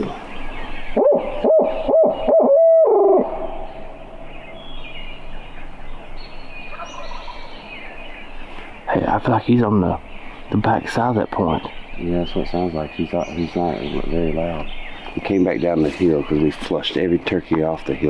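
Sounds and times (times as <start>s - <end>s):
owl hooting call: 0.9s - 4.6s.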